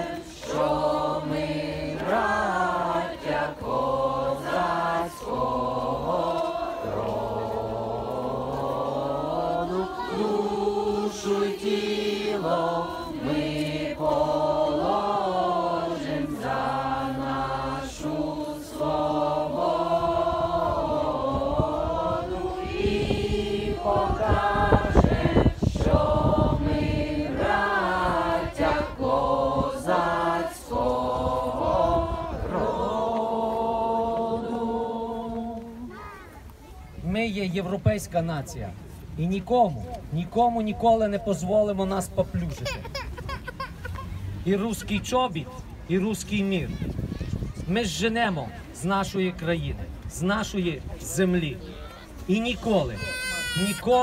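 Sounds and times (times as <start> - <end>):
crowd singing slow solemn song: 0.0 - 36.4.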